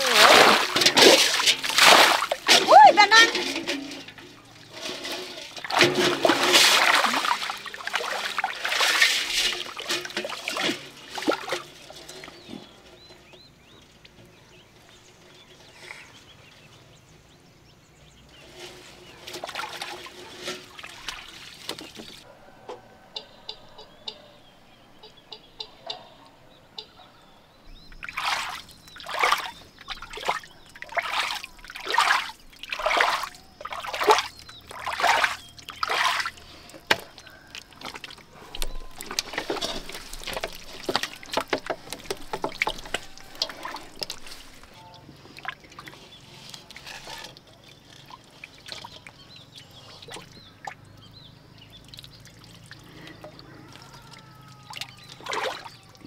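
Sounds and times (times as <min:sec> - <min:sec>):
muddy water splashing: 0:00.0 - 0:16.5, 0:18.0 - 0:22.3, 0:27.7 - 0:56.0
water trickling and dripping: 0:27.7 - 0:55.9.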